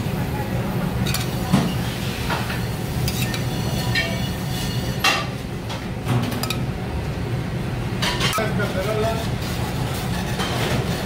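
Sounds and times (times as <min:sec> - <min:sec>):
metal tongs clinking on pan: 0:01.0 - 0:01.4, 0:03.0 - 0:04.4, 0:06.4 - 0:06.6.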